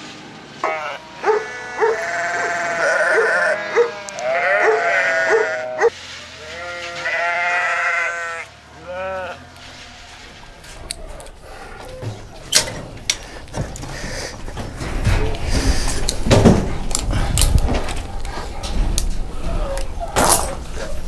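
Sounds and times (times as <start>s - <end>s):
sheep bleating: 0.6s - 10.3s.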